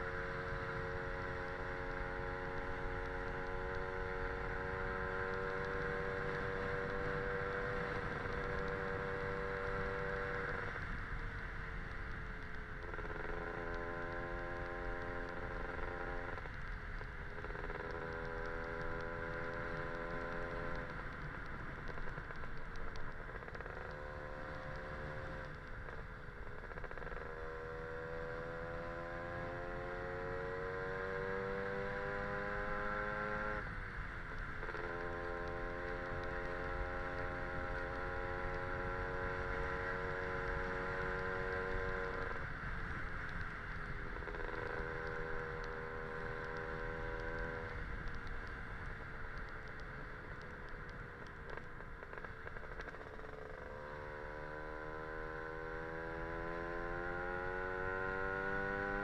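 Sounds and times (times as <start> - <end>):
road and wind noise: 0.0 - 59.0.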